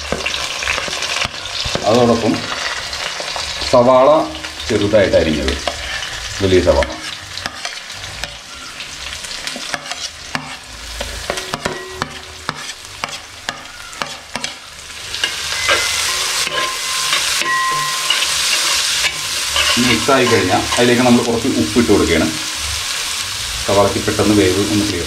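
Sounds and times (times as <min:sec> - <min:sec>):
onion sizzling in oil: 0:00.0 - 0:25.0
metal spatula scraping: 0:05.6 - 0:21.3.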